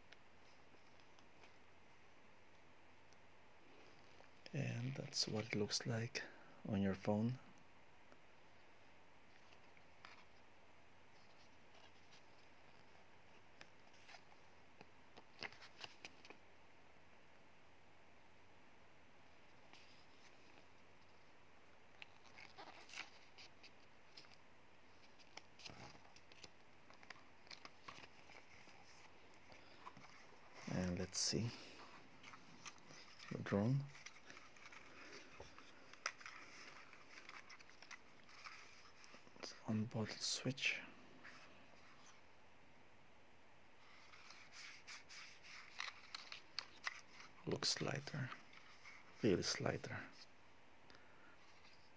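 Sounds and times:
faint steady hiss: 0:00.0 - 0:51.9
paper pages rustling: 0:09.3 - 0:10.4, 0:11.1 - 0:16.4, 0:21.9 - 0:40.3, 0:43.8 - 0:50.3, 0:51.4 - 0:51.9.

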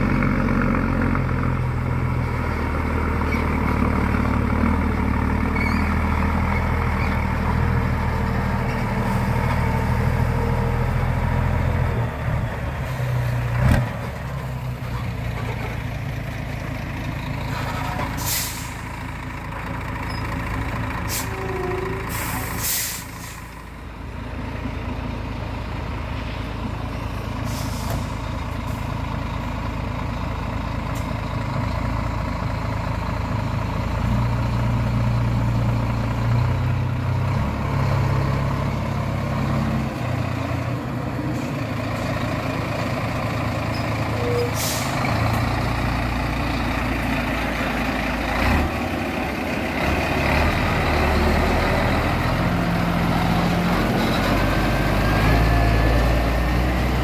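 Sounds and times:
truck diesel engine running: 0:00.0 - 0:57.0
air brakes hissing: 0:18.1 - 0:19.0, 0:21.0 - 0:23.6, 0:27.4 - 0:28.2, 0:44.2 - 0:45.1.

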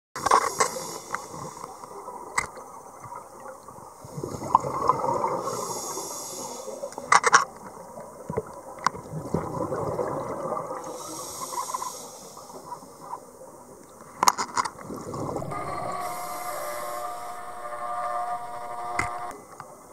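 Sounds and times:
underwater bubbles gurgling: 0:00.8 - 0:05.9, 0:07.5 - 0:11.8, 0:14.8 - 0:17.5.

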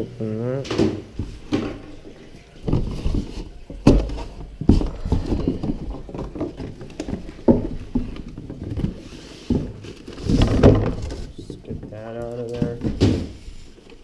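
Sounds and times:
cardboard scraping and rustling: 0:01.1 - 0:14.0
cardboard lid knocks and thumps: 0:02.6 - 0:12.0, 0:12.6 - 0:13.4.

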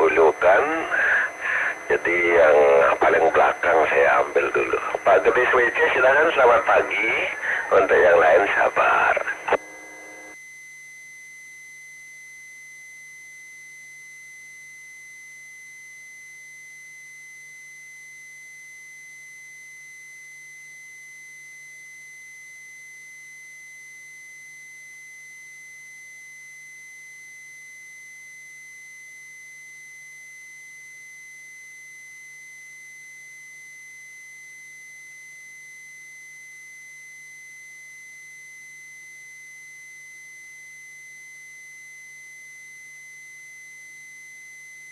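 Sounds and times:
radio hiss: 0:00.0 - 0:10.4.

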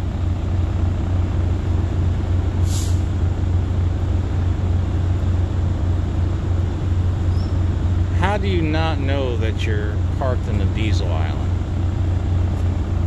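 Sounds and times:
diesel engine idling: 0:00.0 - 0:13.0
short air hiss: 0:02.6 - 0:03.1.

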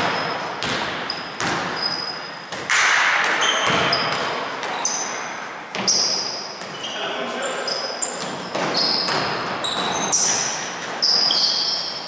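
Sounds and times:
basketball bouncing on hardwood: 0:00.0 - 0:04.8, 0:05.7 - 0:06.9, 0:08.2 - 0:10.4
sneaker squeaks: 0:00.0 - 0:12.0.

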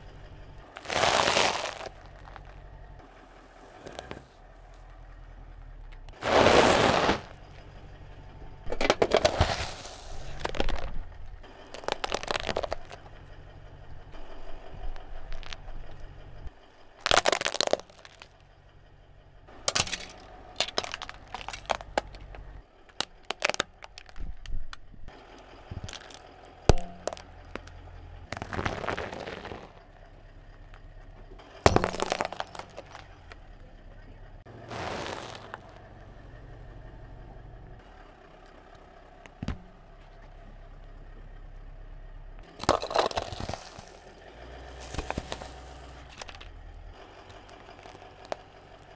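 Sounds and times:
low steady hum: 0:00.0 - 0:34.6
tyre crushing plastic objects: 0:00.8 - 0:02.5, 0:08.7 - 0:11.0, 0:11.7 - 0:13.1, 0:15.3 - 0:15.6, 0:17.0 - 0:18.4, 0:19.6 - 0:24.6, 0:25.7 - 0:27.7, 0:28.3 - 0:29.8, 0:31.7 - 0:33.1, 0:34.7 - 0:35.6, 0:42.6 - 0:44.1, 0:44.8 - 0:46.5.

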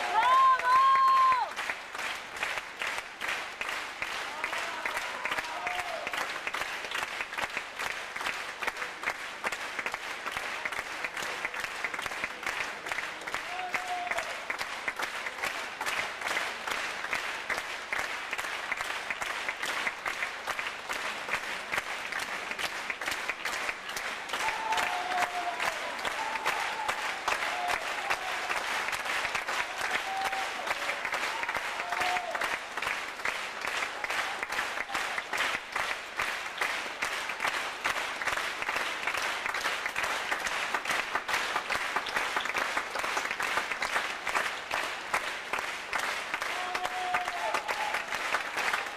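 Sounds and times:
audience applauding: 0:00.0 - 0:48.9
short calls from audience: 0:46.3 - 0:48.2.

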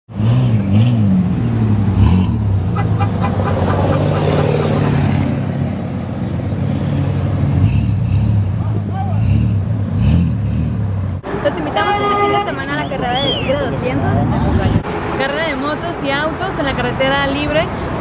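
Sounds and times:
truck engine revving: 0:00.1 - 0:11.3.

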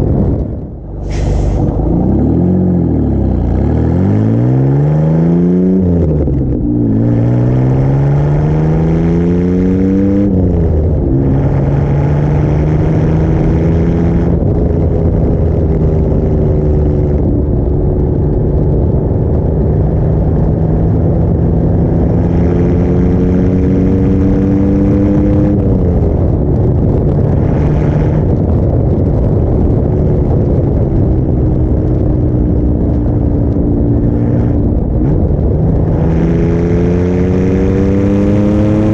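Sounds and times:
car engine and exhaust driving: 0:00.0 - 0:38.9.

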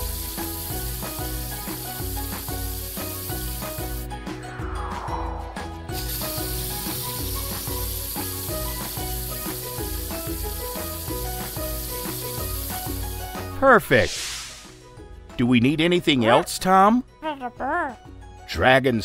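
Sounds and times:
spray paint hissing: 0:00.0 - 0:04.1, 0:05.9 - 0:13.4, 0:14.0 - 0:14.8
bouncy background tune: 0:00.0 - 0:13.9, 0:14.6 - 0:19.0
falling pitch sound effect: 0:04.5 - 0:06.4.

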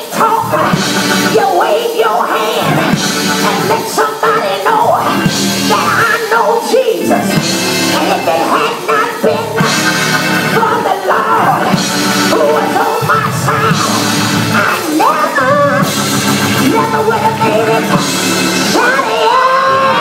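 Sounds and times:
woman singing gospel into microphone: 0:00.0 - 0:09.8, 0:10.4 - 0:16.0, 0:16.6 - 0:20.0
live band playing: 0:00.0 - 0:20.0.

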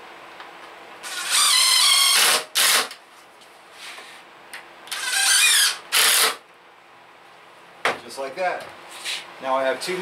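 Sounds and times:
cordless drill driving screws: 0:01.0 - 0:03.0, 0:04.9 - 0:06.4.

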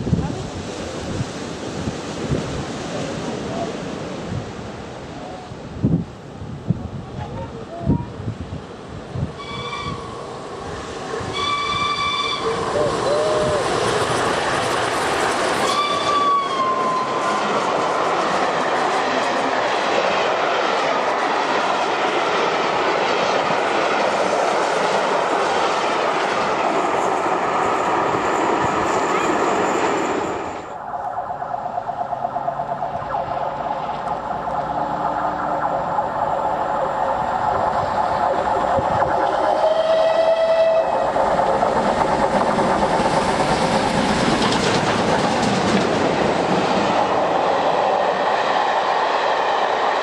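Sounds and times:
carriages rolling on rails: 0:07.0 - 0:50.0
steam locomotive whistle: 0:09.4 - 0:10.2, 0:11.2 - 0:13.8, 0:15.6 - 0:17.2, 0:39.4 - 0:41.1
distant steam locomotive chuffing: 0:31.1 - 0:50.0.

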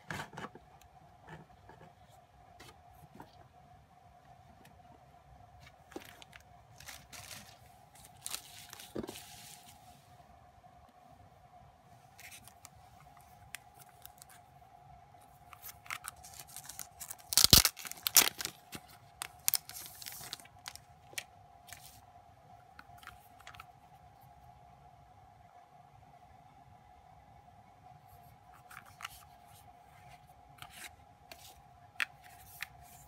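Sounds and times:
plastic wrap crackling and tearing: 0:05.9 - 0:09.0, 0:13.5 - 0:14.4, 0:15.6 - 0:21.8.

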